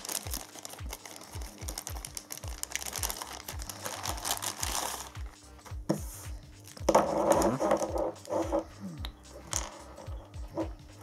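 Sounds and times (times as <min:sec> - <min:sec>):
plastic bag crinkling: 0:00.0 - 0:05.3
electronic music with steady beat: 0:04.5 - 0:11.0.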